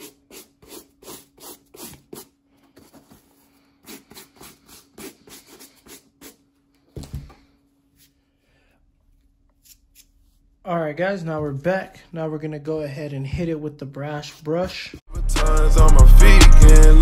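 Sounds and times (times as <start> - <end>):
brush scrubbing suede: 0.0 - 6.4.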